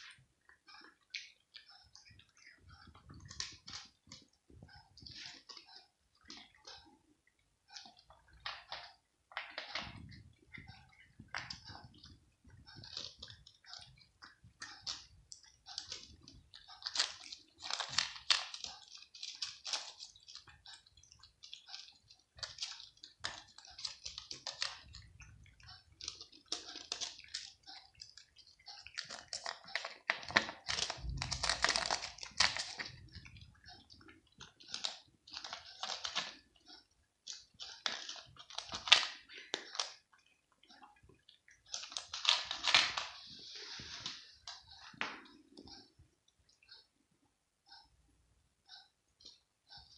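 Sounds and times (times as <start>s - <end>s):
cat crunching dry kibble: 1.9s - 4.3s, 12.8s - 36.5s, 37.2s - 40.0s, 41.6s - 43.5s.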